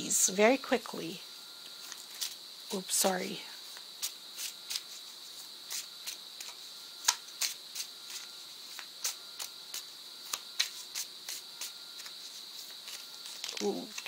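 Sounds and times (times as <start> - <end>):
cards flicking and snapping: 3.8 - 4.9, 5.7 - 12.2, 12.8 - 14.0.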